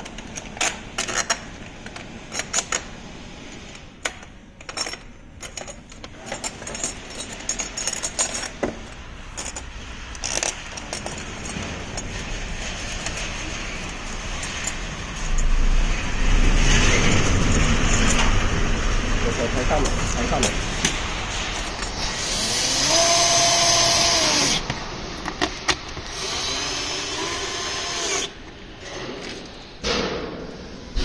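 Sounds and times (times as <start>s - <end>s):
rushing noise with low rumble: 11.5s - 21.9s.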